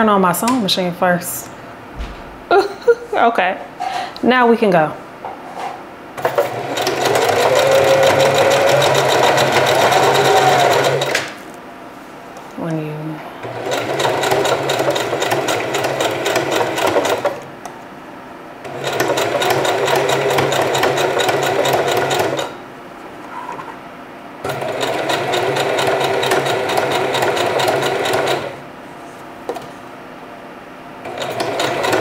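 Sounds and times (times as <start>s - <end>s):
electric sewing machine stitching: 6.2s - 11.3s, 13.4s - 17.5s, 18.6s - 22.6s, 24.4s - 28.6s, 31.0s - 32.0s.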